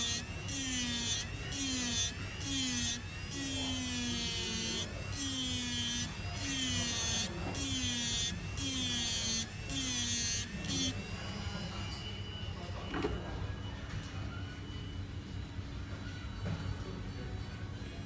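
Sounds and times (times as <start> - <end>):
rotary tool grinding metal: 0.0 - 12.2.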